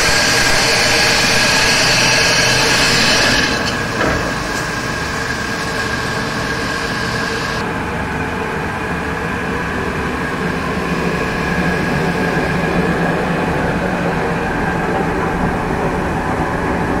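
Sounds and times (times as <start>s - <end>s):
tile saw machine humming: 0.0s - 7.6s.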